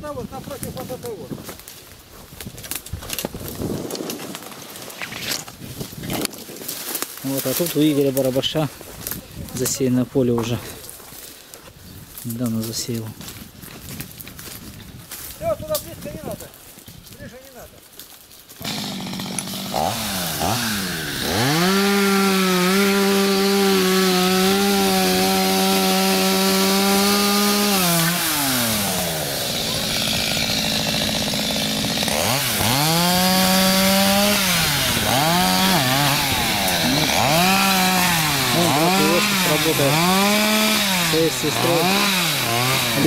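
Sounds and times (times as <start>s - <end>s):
chainsaw revving and cutting wood: 18.5s - 43.0s.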